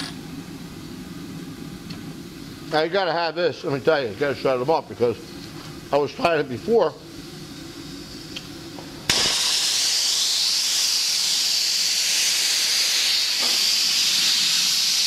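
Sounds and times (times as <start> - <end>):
loud steam hiss from valve: 9.0 - 15.0.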